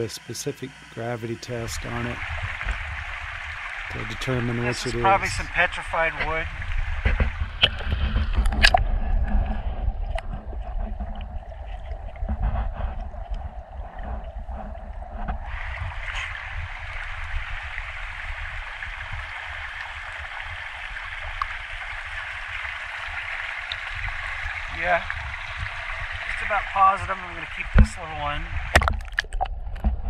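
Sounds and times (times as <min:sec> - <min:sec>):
flowing river water: 0:00.0 - 0:29.9
rocks knocking together: 0:28.7 - 0:30.0.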